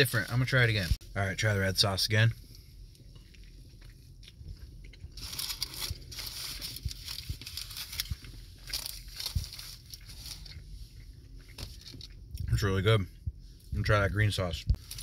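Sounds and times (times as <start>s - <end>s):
person chewing food: 2.5s - 12.5s.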